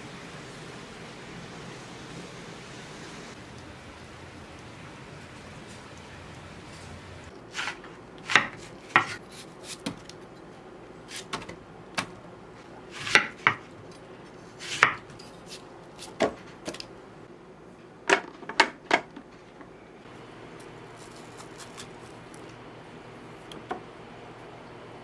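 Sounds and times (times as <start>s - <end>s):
knife chopping on wooden board: 7.6s - 10.0s, 13.0s - 13.7s.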